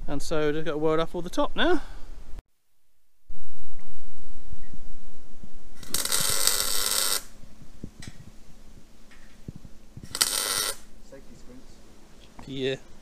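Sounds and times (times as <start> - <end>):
arc welding crackle: 5.7 - 8.2, 9.1 - 11.3.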